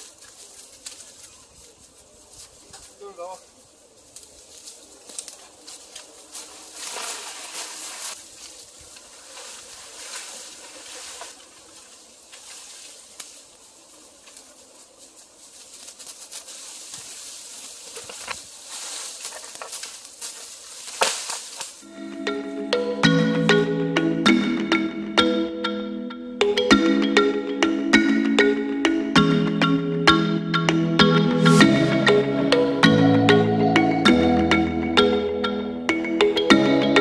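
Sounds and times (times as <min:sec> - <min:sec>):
dry leaves rustling and crackling: 0:00.0 - 0:21.9.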